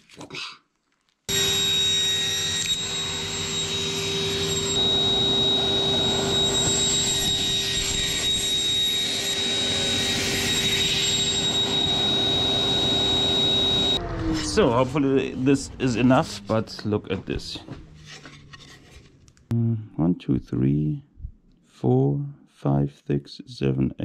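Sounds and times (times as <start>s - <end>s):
power saw whining: 1.3s - 18.1s.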